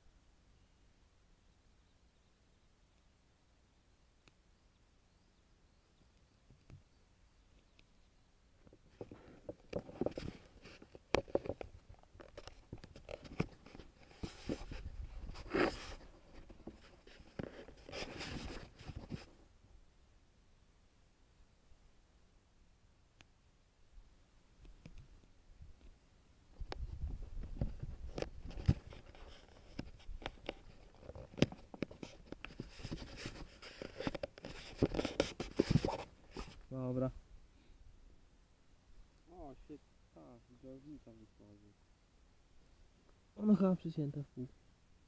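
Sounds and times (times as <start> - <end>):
light scratching: 8.6 - 19.4, 26.7 - 37.0
rustling of handled objects: 8.6 - 19.5, 24.7 - 37.1.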